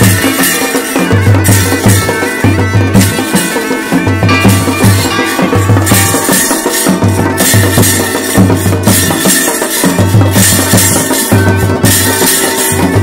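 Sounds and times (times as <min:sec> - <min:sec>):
wind instrument drone: 0:00.0 - 0:08.9
drums beating steady rhythm: 0:00.0 - 0:13.0.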